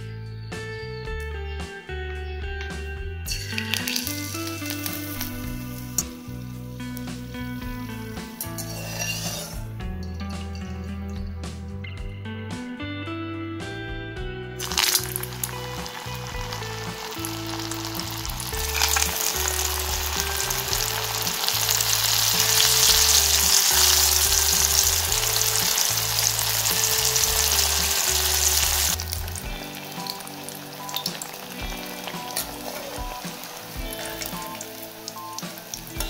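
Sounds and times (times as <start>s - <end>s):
food deep-frying in hot oil: 3.3s - 6.2s, 6.9s - 9.7s, 14.6s - 36.0s.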